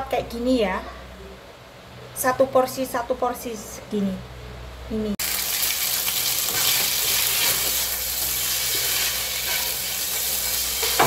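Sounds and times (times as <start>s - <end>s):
noodles sizzling in hot oil: 5.2s - 11.0s.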